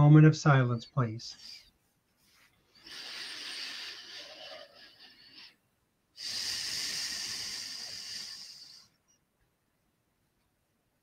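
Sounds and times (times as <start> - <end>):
person breathing slowly: 1.4 - 9.2.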